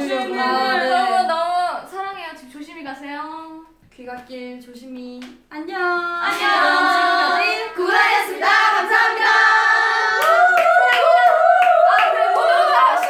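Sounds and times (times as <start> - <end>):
women singing in harmony: 5.8 - 13.0.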